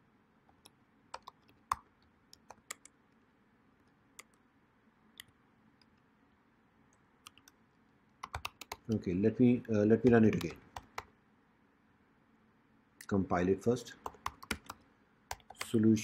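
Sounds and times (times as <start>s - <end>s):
keyboard keystrokes: 8.2s - 9.0s, 10.0s - 11.1s, 14.1s - 15.8s.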